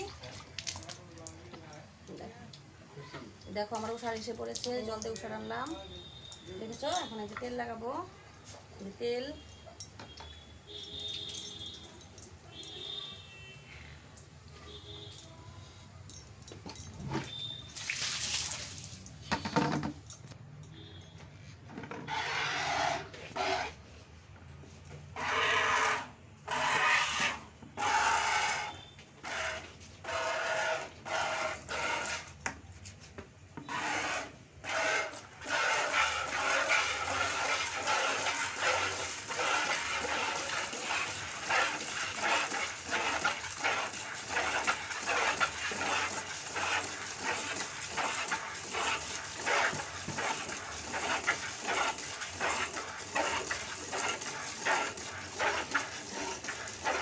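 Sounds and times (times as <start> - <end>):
milk squirting into plastic bucket: 0.0 - 1.8, 17.2 - 19.2, 35.0 - 57.0.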